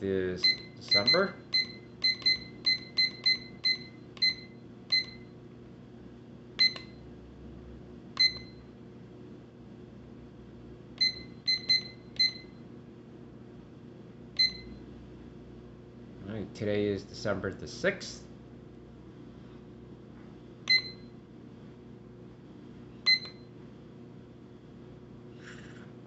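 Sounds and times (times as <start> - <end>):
alarm clock key-press beeps: 0.4 - 5.3, 6.6 - 7.0, 8.2 - 8.6, 11.0 - 12.6, 14.4 - 14.8, 20.7 - 21.1, 23.1 - 23.4.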